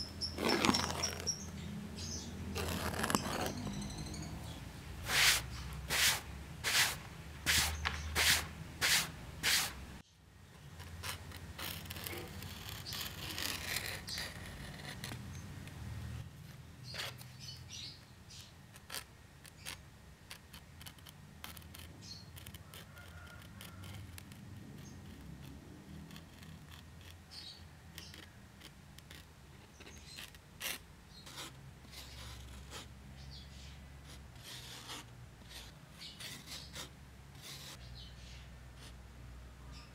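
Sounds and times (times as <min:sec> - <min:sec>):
knife scraping leather: 0:00.2 - 0:01.5, 0:02.5 - 0:03.9, 0:05.0 - 0:09.8, 0:10.8 - 0:15.2, 0:18.8 - 0:32.9, 0:34.1 - 0:37.9.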